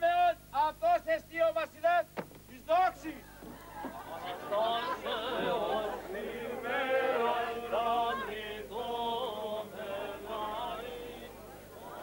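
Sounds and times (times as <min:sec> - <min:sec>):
men chanting a hymn: 0:03.9 - 0:12.0.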